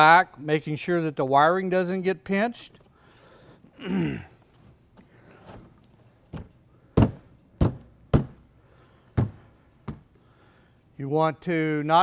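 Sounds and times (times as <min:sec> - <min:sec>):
hollow plastic thunks: 0:05.4 - 0:08.5, 0:09.1 - 0:10.1.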